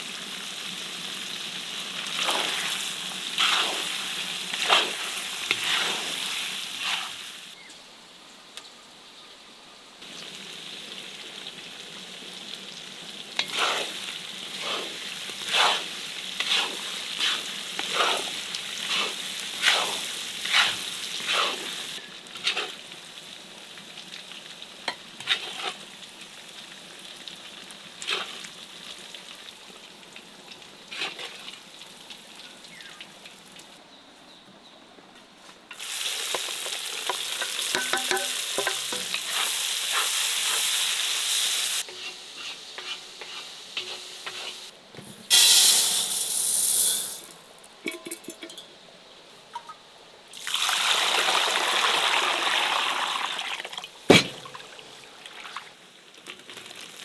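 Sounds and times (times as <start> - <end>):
meat sizzling in hot oil: 0.0 - 7.6, 10.0 - 33.4, 35.7 - 44.7, 45.3 - 47.3, 50.3 - 53.6
wooden spatula scraping a pot: 3.4 - 3.9, 4.5 - 6.1, 13.4 - 14.0, 14.6 - 21.7, 22.4 - 22.8, 25.2 - 25.8, 35.7 - 40.2, 41.8 - 44.7.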